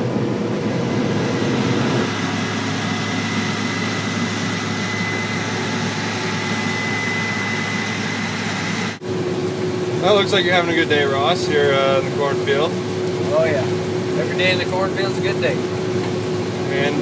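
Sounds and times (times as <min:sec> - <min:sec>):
combine harvester drone: 0:00.0 - 0:17.0
thin high whine: 0:00.7 - 0:09.0.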